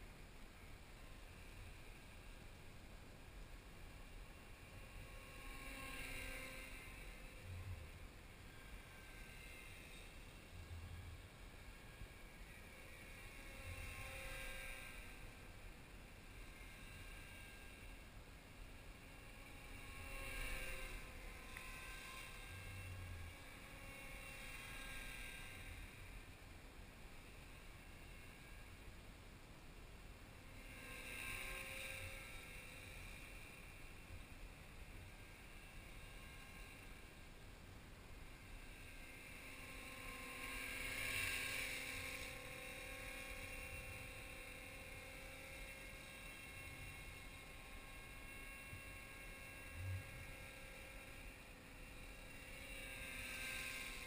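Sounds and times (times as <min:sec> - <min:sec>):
rc helicopter whine: 0:00.0 - 0:54.0.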